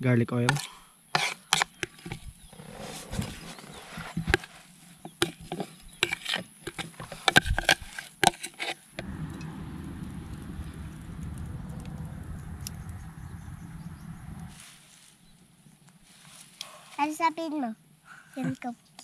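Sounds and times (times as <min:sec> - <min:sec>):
low rushing noise: 0:09.0 - 0:14.6.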